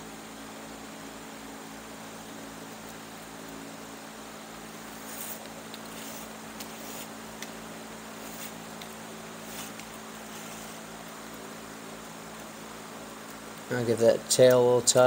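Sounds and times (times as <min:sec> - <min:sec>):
steady hum and hiss: 0:00.0 - 0:15.0
cane rasping against woven strands: 0:04.8 - 0:07.5, 0:08.1 - 0:12.4.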